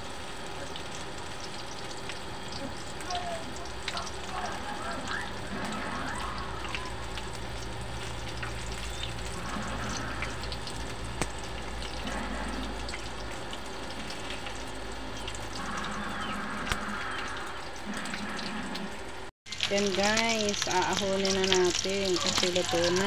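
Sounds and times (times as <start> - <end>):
meat deep-frying in oil: 0.0 - 23.0
oil popping: 0.8 - 15.9.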